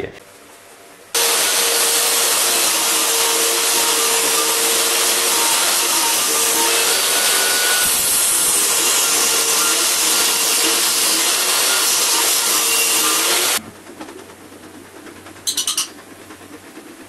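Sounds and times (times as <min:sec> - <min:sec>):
table saw ripping wood: 0:01.2 - 0:13.6.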